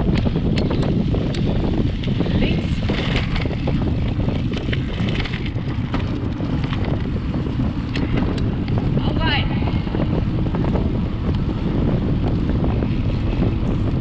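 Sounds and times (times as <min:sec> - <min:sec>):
sharp clicks and rattles: 0:00.0 - 0:08.9
bike tyres rolling over track: 0:00.0 - 0:14.0
wind buffeting microphone: 0:00.0 - 0:14.0.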